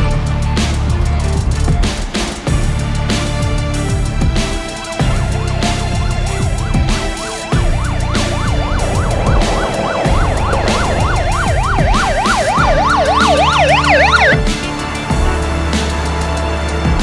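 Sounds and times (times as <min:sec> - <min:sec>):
background music with beat: 0:00.0 - 0:17.0
police siren yelping: 0:05.2 - 0:14.6.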